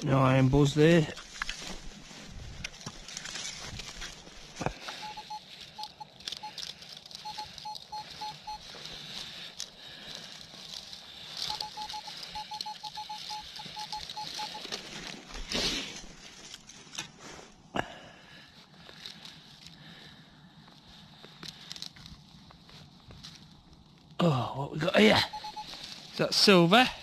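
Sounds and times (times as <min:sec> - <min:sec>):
rustling and scraping of soil: 0:00.0 - 0:27.0
metal detector beeping: 0:04.7 - 0:15.4, 0:24.8 - 0:27.0.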